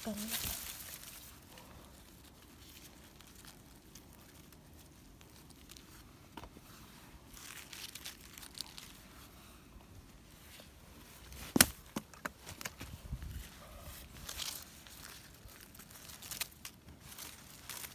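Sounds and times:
rustling in dry leaves: 0:00.0 - 0:11.8, 0:12.4 - 0:17.9.

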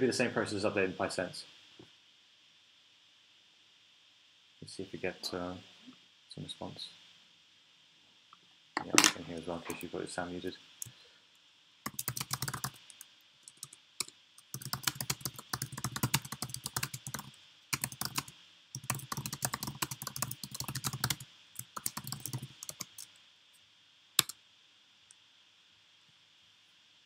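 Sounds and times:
typing on computer keyboard: 0:11.9 - 0:23.1.

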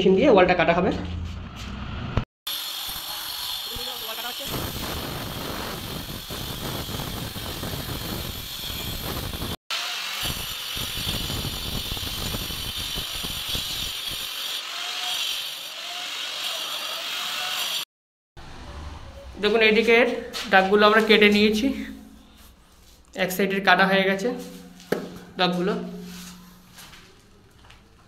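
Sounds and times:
angle grinder cutting masonry: 0:02.5 - 0:17.9.

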